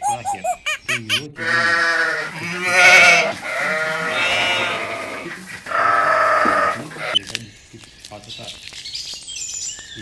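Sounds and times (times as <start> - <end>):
sheep bleating: 1.4 - 7.2.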